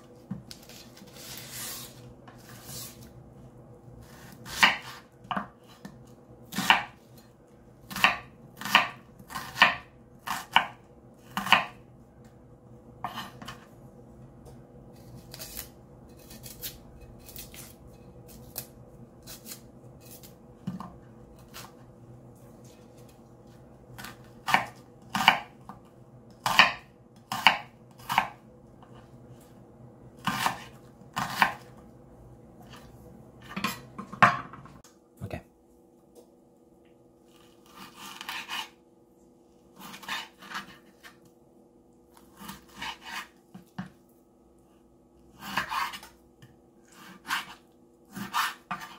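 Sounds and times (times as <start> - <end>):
knife chopping on cutting board: 4.2 - 7.0, 7.9 - 11.8, 24.0 - 25.8, 26.4 - 28.4, 30.2 - 31.7, 37.6 - 38.8, 39.8 - 41.2, 42.4 - 44.0, 45.4 - 48.9.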